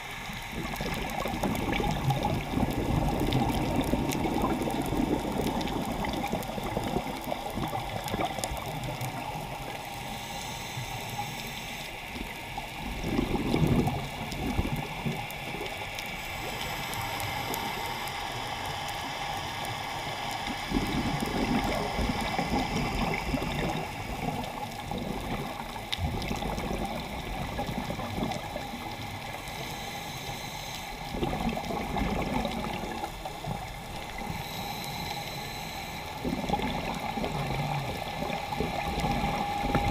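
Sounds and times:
gurgling exhaled bubbles: 0.0s - 10.2s, 12.1s - 18.0s, 20.4s - 29.4s, 31.0s - 34.8s, 36.2s - 39.9s
underwater wash: 0.0s - 39.9s
hissing breaths through regulator: 9.8s - 12.1s, 16.1s - 24.2s, 29.2s - 31.3s, 34.1s - 36.6s.

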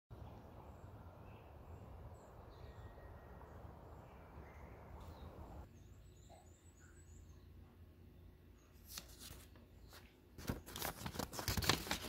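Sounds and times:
faint bird chirps: 0.2s - 8.9s.

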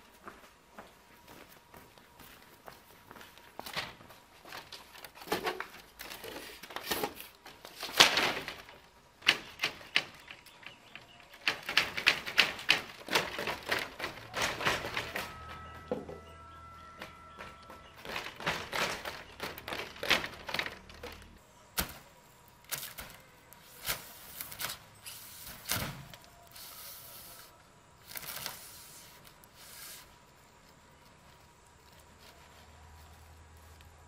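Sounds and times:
child's footsteps: 0.0s - 21.4s
knocks and rustles: 3.6s - 22.1s
bamboo slats clattering: 3.7s - 16.2s, 17.0s - 22.1s.

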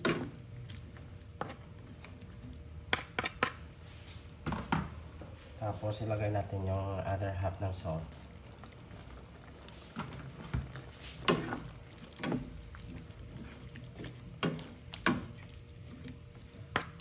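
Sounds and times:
liquid sloshing: 8.0s - 17.0s
spatula stirring stew in a wok: 9.4s - 17.0s.

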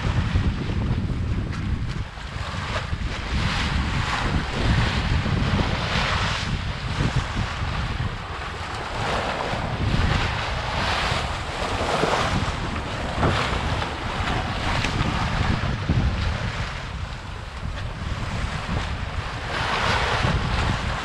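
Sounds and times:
water rushing along boat hull: 0.0s - 21.0s
wind buffeting microphone: 0.0s - 21.0s.

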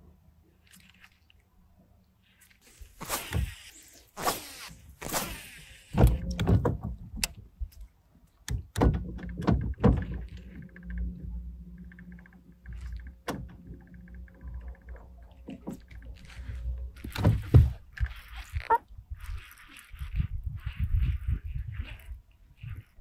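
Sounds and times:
low steady hum: 4.8s - 22.3s
fishing reel ticking: 17.9s - 23.0s.

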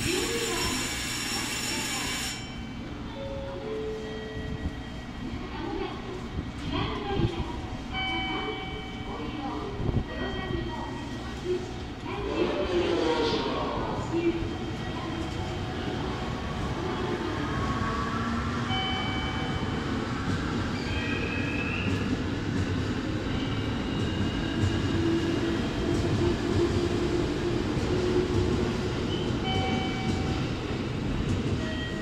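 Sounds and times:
electric train rumble: 11.8s - 32.0s.

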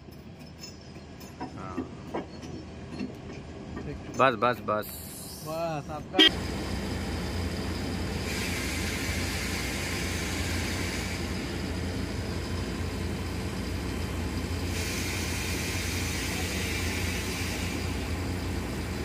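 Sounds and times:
large engine humming: 5.8s - 19.0s
hiss: 8.1s - 11.6s, 14.6s - 18.9s.

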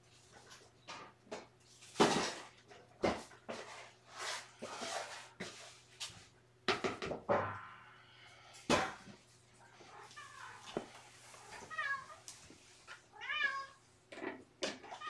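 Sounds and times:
scoop scraping cat litter: 3.5s - 6.2s.

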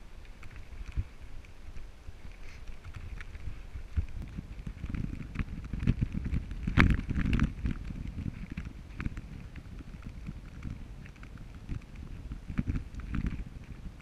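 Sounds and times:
footsteps on rocky trail: 0.4s - 14.0s.

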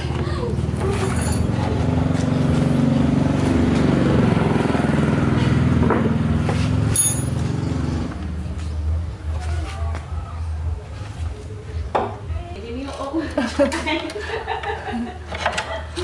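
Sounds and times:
vehicle passing: 0.0s - 11.7s.

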